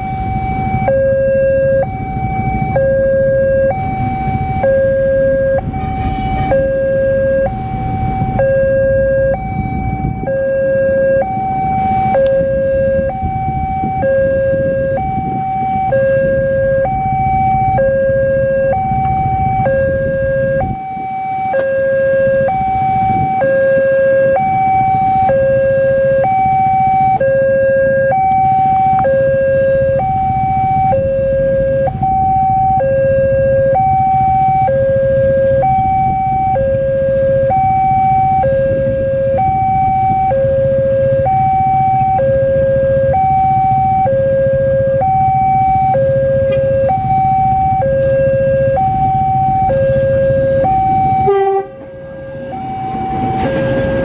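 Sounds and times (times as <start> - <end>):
steady low rumble: 0.0 - 26.4
level-crossing warning alarm: 0.0 - 54.0.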